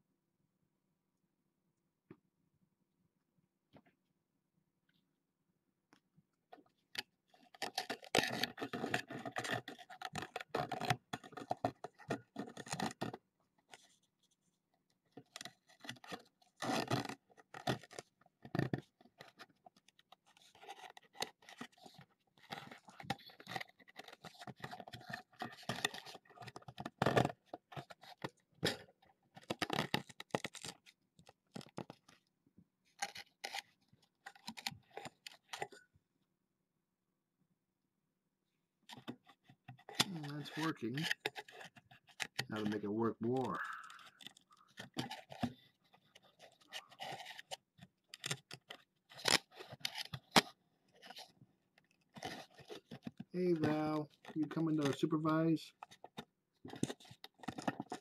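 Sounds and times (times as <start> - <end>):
kitten scratching fabric tunnel: 15.2 - 31.8.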